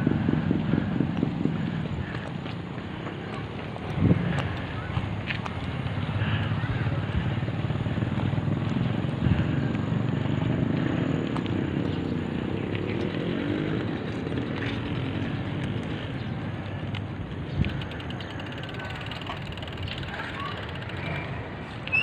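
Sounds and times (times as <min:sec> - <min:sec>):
wind on microphone: 0:00.0 - 0:10.4
tyres rolling on concrete: 0:00.1 - 0:22.0.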